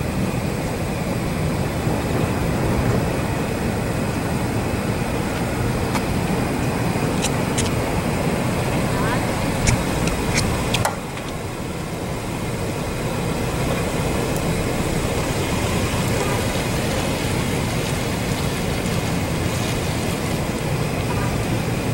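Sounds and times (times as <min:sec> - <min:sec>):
outdoor background rumble: 0:00.0 - 0:21.9
sharp clicks: 0:07.2 - 0:07.8, 0:09.6 - 0:11.4.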